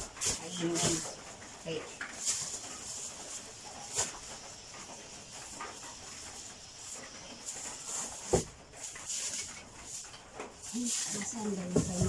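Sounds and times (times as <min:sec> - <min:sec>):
plastic bags crinkling: 0:00.0 - 0:12.0.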